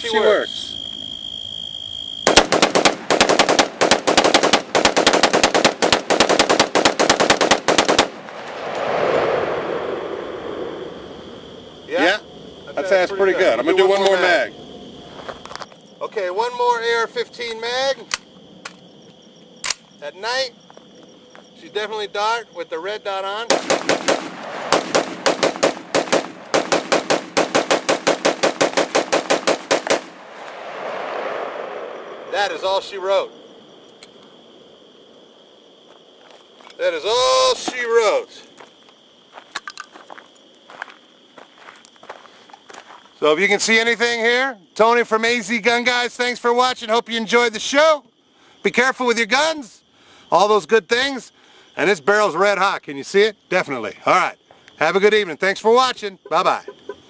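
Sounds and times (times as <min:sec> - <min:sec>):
rifle rapid fire: 0:02.3 - 0:08.2, 0:23.5 - 0:30.3
rushing noise: 0:08.0 - 0:11.8, 0:24.2 - 0:26.7, 0:29.7 - 0:33.4.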